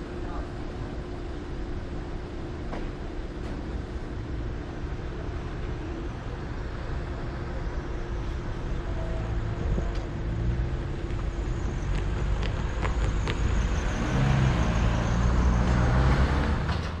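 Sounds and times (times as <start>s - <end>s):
cars passing: 6.6s - 17.0s.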